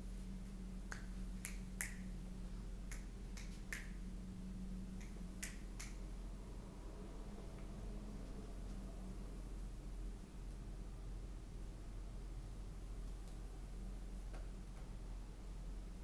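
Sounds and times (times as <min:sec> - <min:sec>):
low room hum: 0:00.0 - 0:16.0
sharp clicks from fidgeting hands: 0:00.9 - 0:02.0, 0:02.9 - 0:04.0, 0:05.0 - 0:06.0.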